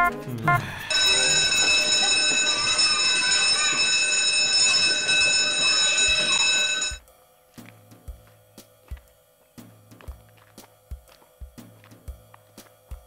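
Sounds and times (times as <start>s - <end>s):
electric bell ringing: 0.5s - 7.0s.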